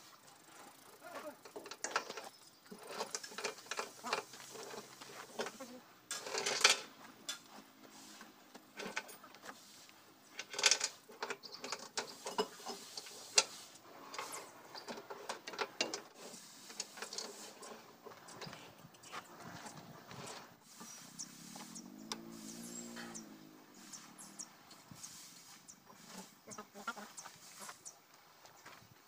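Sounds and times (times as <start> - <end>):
metal clinks and rattles: 0.5 - 7.4, 10.3 - 13.5.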